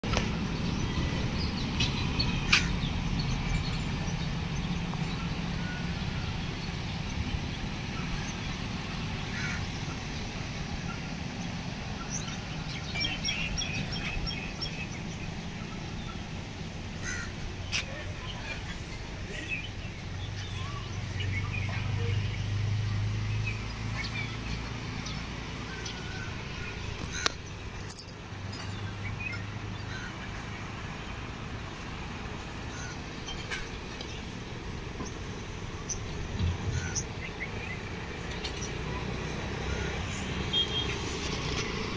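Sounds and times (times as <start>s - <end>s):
crows cawing: 9.3s - 9.6s, 17.0s - 17.4s
bird calls: 23.4s - 30.2s, 35.8s - 41.5s.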